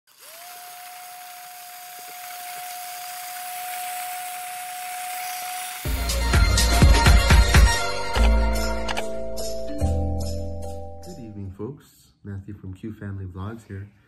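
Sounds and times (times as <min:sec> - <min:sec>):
small motor whining: 0:00.1 - 0:06.3
loud intro music: 0:05.8 - 0:11.2.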